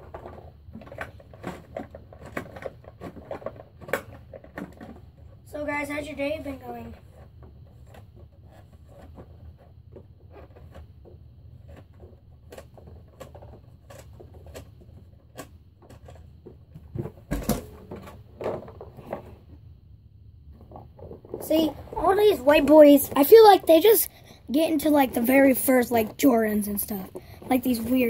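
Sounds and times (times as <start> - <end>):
small objects clicking and rustling: 0.0 - 5.4, 6.8 - 19.4
low room hum: 0.0 - 28.0.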